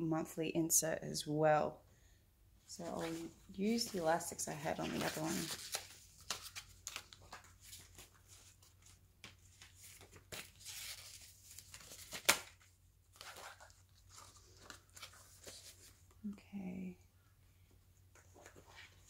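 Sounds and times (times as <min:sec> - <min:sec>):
notebook rustling: 0:02.8 - 0:16.2.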